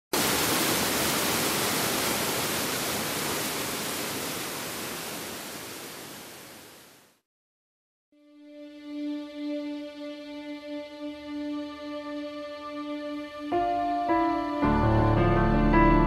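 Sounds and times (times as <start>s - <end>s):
water rushing down rocky stream: 0.2s - 7.0s.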